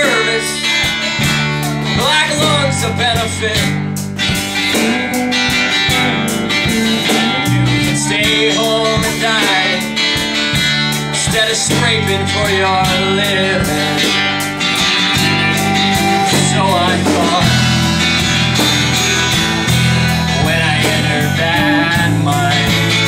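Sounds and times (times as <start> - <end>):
electric bass: 0.0 - 23.0
strummed acoustic guitar: 0.0 - 23.0
drum hits: 12.9 - 23.0.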